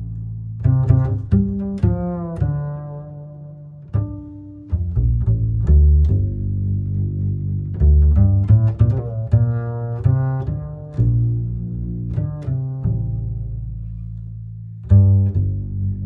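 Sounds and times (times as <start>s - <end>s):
slow plucked bass notes: 0.0s - 16.0s.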